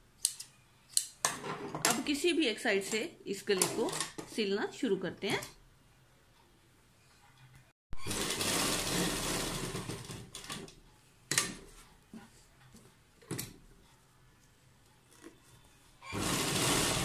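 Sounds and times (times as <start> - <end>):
sewing machine stitching: 8.0 - 10.7, 16.0 - 17.0.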